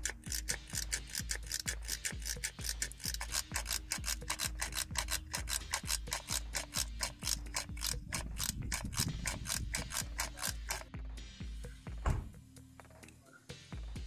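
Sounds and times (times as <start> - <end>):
hand oil pump ratcheting clicks: 0.0 - 10.9.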